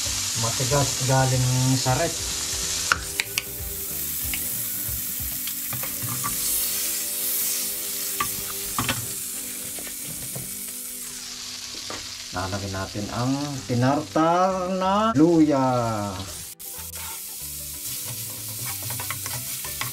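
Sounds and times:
margarine sizzling in frying pan: 0.0 - 19.9
spatula clicking against pan: 2.9 - 3.6.

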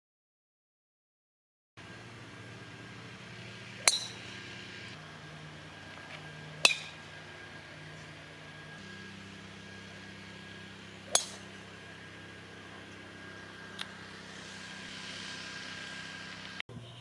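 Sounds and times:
steady low hum: 1.8 - 17.0
golf driver striking ball: 3.8 - 4.4, 6.5 - 7.1, 11.0 - 11.7.

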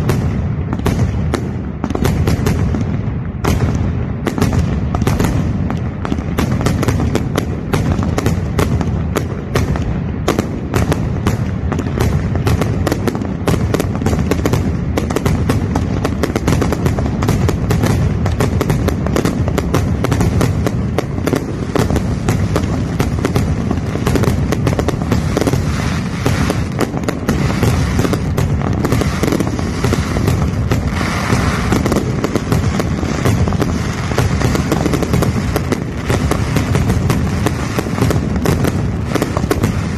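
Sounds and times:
fireworks barrage crackling: 0.0 - 39.9.

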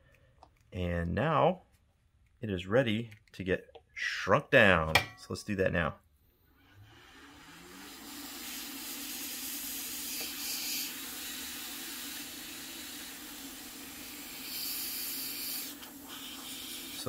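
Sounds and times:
hot-air gun blowing: 6.7 - 17.0.

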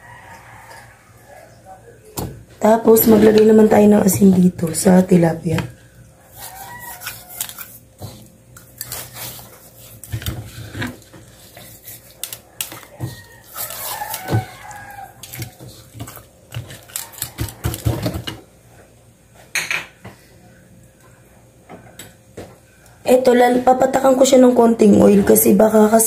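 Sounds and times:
hands rubbing salt into fish: 13.5 - 16.2.

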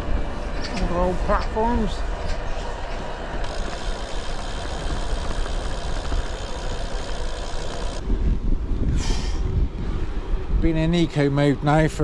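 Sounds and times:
bike tyres rolling on tarmac: 0.0 - 8.8
low steady rumble: 0.0 - 11.6
wind buffeting microphone: 0.0 - 12.0.

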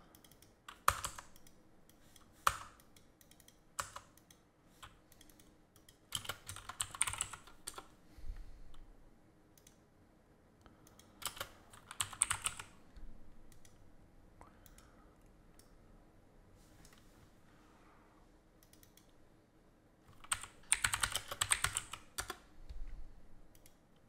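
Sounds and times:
computer keyboard typing: 0.0 - 7.9, 10.9 - 12.8, 13.5 - 13.8, 20.1 - 22.5.

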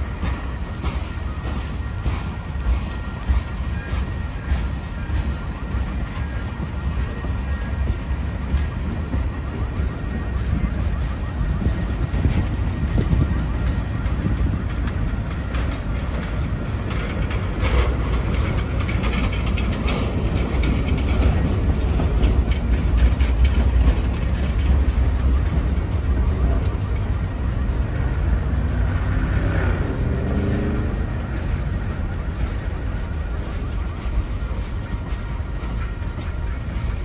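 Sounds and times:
freight cars rolling on rails: 0.0 - 37.0.

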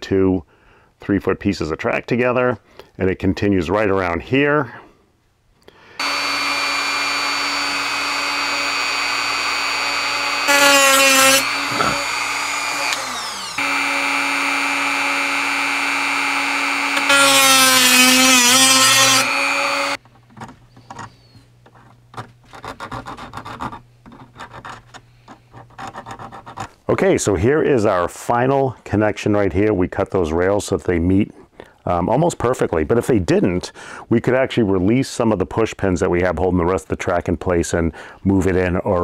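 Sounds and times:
rotary tool cutting metal: 6.0 - 20.0
clicks and rubbing of track: 20.0 - 26.9.

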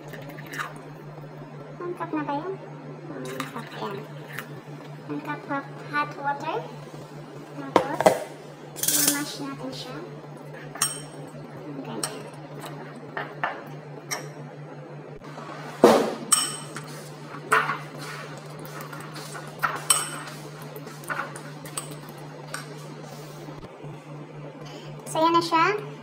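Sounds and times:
fork clinking against bowl: 10.8 - 11.2.

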